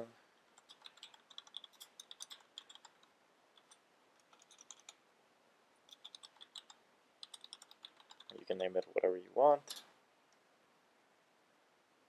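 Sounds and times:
typing on mechanical keyboard: 0.6 - 5.0, 5.9 - 8.4.

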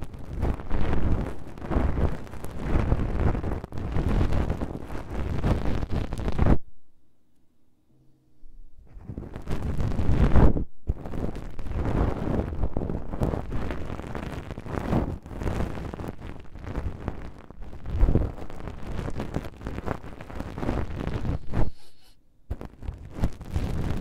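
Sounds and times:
close rustling and scratching: 11.0 - 24.0.

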